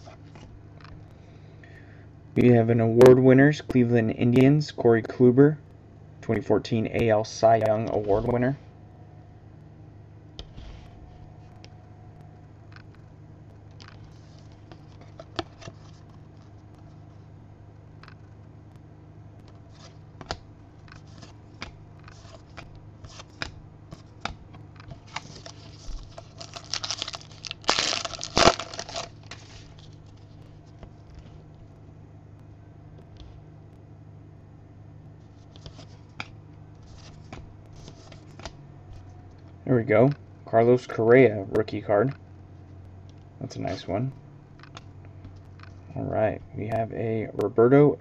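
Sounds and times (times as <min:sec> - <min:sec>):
cards rustling and scraping: 0:00.0 - 0:00.6, 0:13.7 - 0:17.3, 0:19.4 - 0:31.7, 0:35.2 - 0:39.2, 0:43.5 - 0:44.0
cards clicking and snapping: 0:19.5 - 0:29.5.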